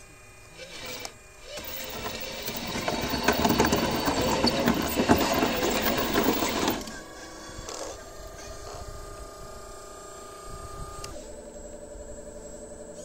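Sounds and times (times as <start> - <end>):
model excavator motors whirring: 0.0 - 13.0
fast gear rattle: 0.6 - 8.0.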